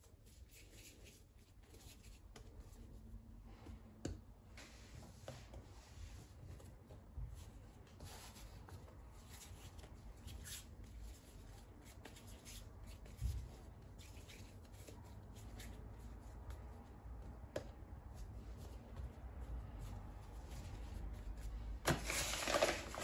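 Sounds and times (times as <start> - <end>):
hands rustling and tapping: 6.3 - 23.0.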